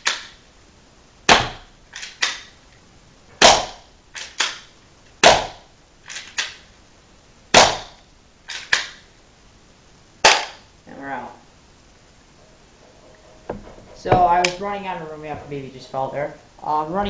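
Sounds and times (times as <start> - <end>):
airsoft pistol shots: 1.3 - 2.5, 3.4 - 5.7, 7.5 - 8.0, 10.2 - 10.6.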